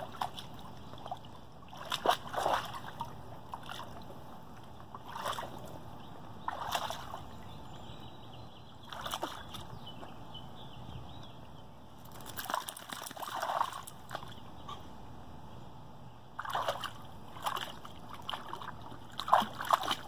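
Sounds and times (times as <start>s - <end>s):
pool water splashing and sloshing: 0.0s - 7.9s, 8.7s - 10.3s, 12.0s - 14.6s, 16.3s - 20.0s
low water lapping: 0.0s - 11.1s, 16.4s - 20.0s.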